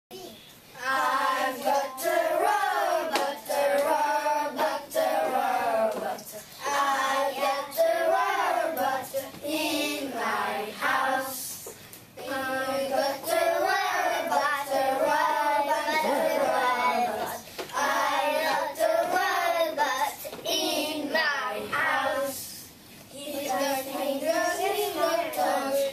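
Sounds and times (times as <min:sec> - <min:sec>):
children singing together: 0:00.8 - 0:25.9
hand clapping: 0:03.1 - 0:04.0.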